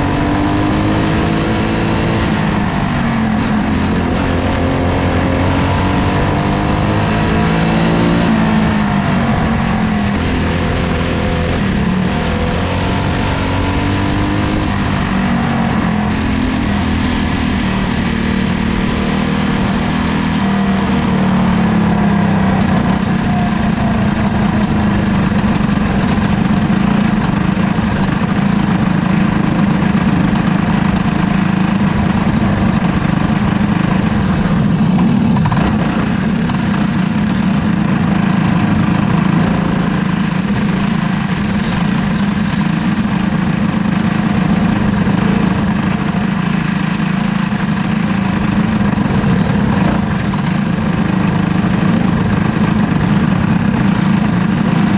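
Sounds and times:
race car engine revving: 0:00.0 - 0:54.9.

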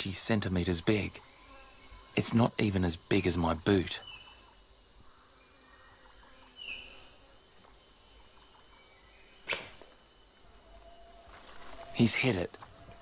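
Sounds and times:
faint rainforest background: 0:00.0 - 0:13.0.

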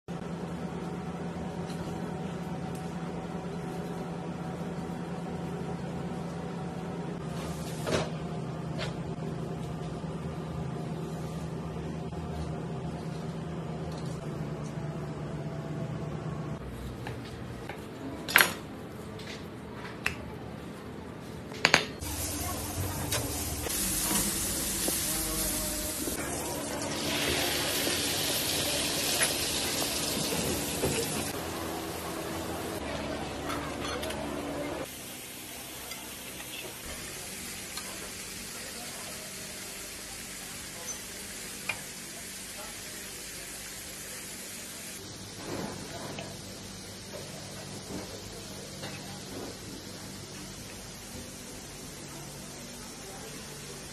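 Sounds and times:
kitchen machinery hum: 0:00.1 - 0:53.9
hot fat sizzling in a frying pan: 0:22.0 - 0:31.3.

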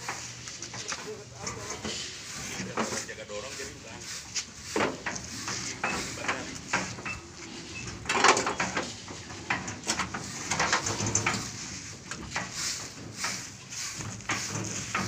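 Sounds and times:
metal drum knocking and scraping: 0:04.6 - 0:15.0.

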